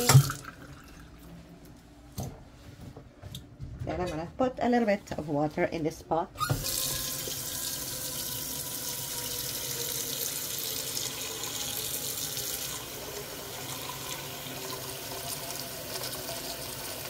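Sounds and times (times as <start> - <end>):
faucet running into a pot: 0.0 - 1.0, 6.4 - 17.0.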